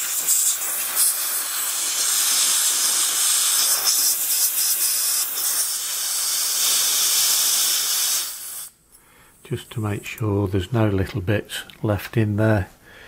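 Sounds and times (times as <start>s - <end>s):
compressed air hissing: 0.0s - 10.2s.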